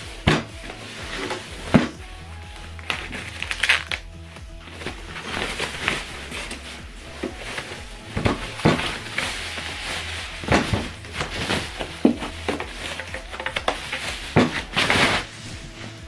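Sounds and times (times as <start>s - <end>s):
foam wrapping rustling: 0.0s - 16.0s
handling knocks: 4.6s - 15.8s.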